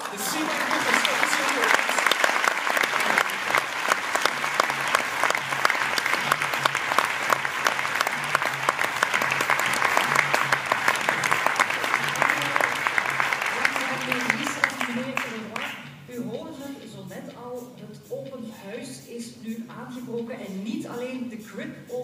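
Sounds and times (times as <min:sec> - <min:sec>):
large audience applauding: 0:00.0 - 0:15.8.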